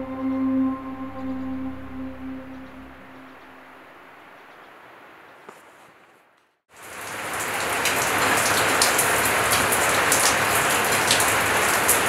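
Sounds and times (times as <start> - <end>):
steady rain: 3.7 - 12.0.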